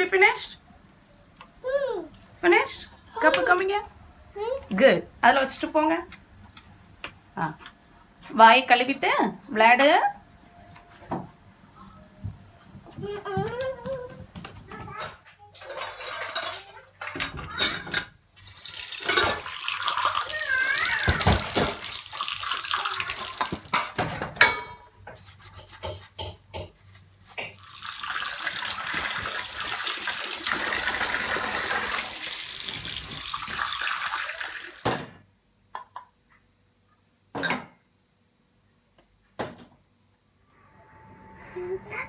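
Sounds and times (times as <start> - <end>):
tap water running into steel sink: 18.4 - 23.8, 27.5 - 34.9.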